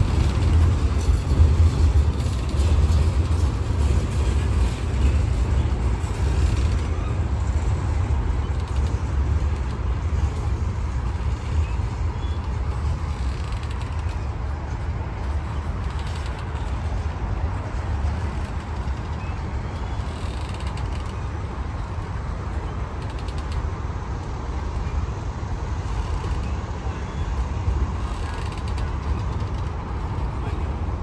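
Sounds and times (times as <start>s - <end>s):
train cars clanking: 0.0s - 31.0s
train wheels rumbling on rails: 0.0s - 31.0s.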